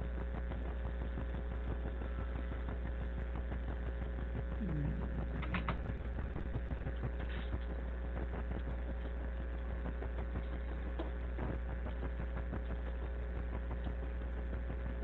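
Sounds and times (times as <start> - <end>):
electrical hum and hiss: 0.0 - 15.0
faint clicks: 5.2 - 9.6.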